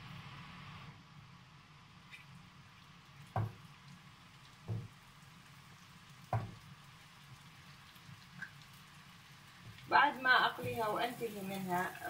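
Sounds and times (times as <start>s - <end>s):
meatballs thudding into pan: 3.3s - 3.6s, 6.3s - 6.7s.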